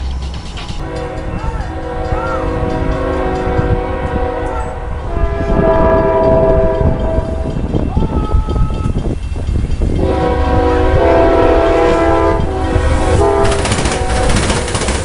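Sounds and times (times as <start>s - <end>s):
train rumble: 0.0s - 15.0s
locomotive air horn: 0.8s - 7.6s, 10.0s - 14.7s.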